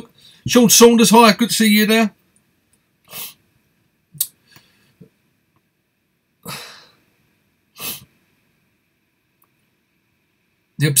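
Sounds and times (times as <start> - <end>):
mouth clicks: 4.2 - 4.4
man breathing: 6.4 - 7.1.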